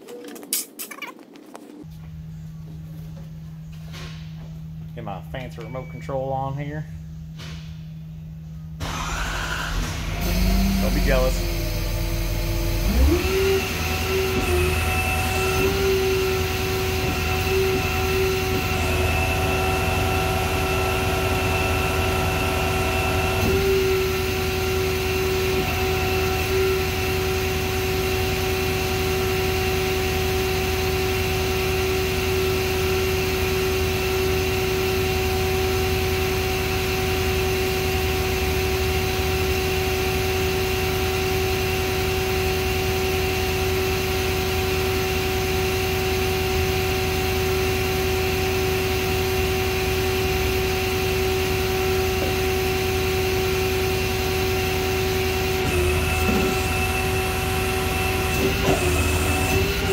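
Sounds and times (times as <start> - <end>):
hoist motor humming: 55.5 - 59.9.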